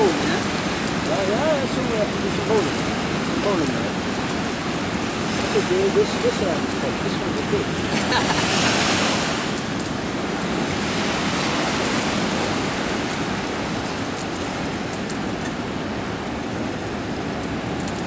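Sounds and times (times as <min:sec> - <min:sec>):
choppy water: 0:00.0 - 0:18.0.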